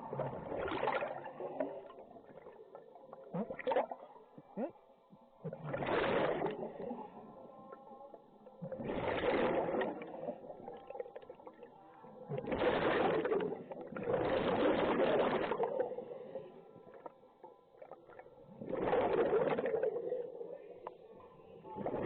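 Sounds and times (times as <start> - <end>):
air bubbles bursting out: 0.1 - 1.8, 5.5 - 6.6, 8.8 - 10.1, 12.4 - 15.8, 18.6 - 20.0.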